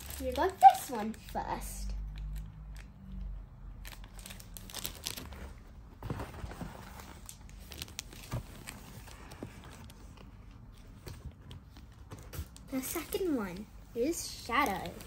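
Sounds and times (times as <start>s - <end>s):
plastic bag crinkling: 0.0s - 1.3s, 3.8s - 5.5s, 6.6s - 10.2s.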